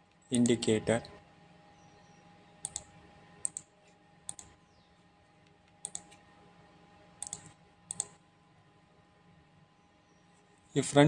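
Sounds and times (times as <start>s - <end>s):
faint steady hum: 0.0s - 11.0s
computer mouse clicking: 2.6s - 3.7s, 4.3s - 4.6s, 5.4s - 6.2s, 7.2s - 8.2s.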